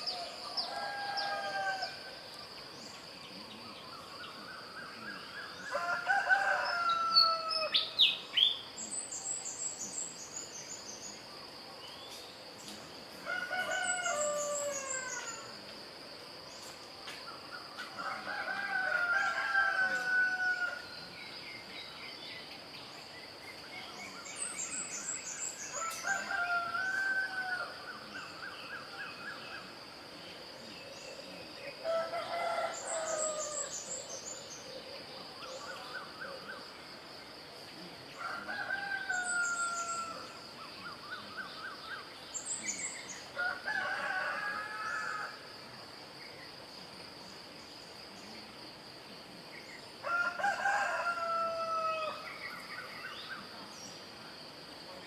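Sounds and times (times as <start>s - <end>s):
small birds chirping: 0.0s - 31.8s
rooster crowing: 0.1s - 2.0s, 5.7s - 7.7s, 13.2s - 15.4s, 18.0s - 20.9s, 25.7s - 27.9s, 31.8s - 33.8s, 38.2s - 40.4s, 43.4s - 45.4s, 50.0s - 52.2s.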